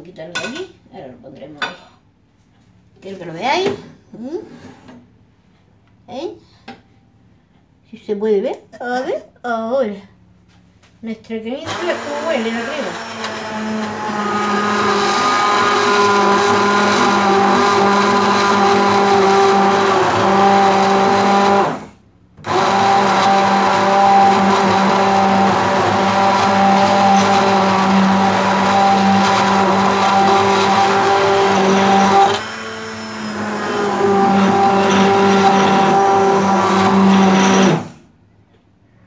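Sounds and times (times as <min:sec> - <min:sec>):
immersion blender motor hum: 0:11.6 - 0:38.0.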